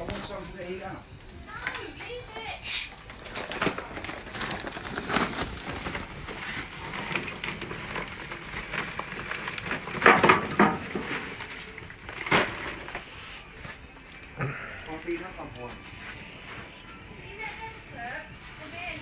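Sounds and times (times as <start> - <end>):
charcoal clattering onto grate: 2.9 - 15.8.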